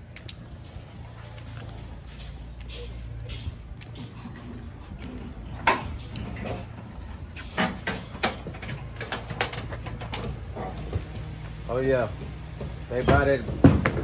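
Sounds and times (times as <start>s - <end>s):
furniture and boxes knocking: 12.6s - 14.0s.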